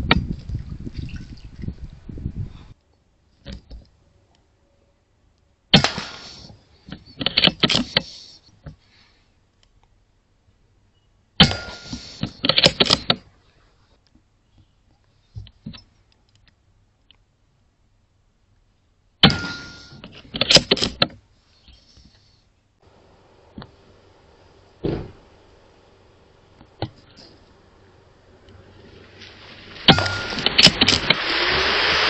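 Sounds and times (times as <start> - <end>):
air rifle shots: 5.7 - 6.5.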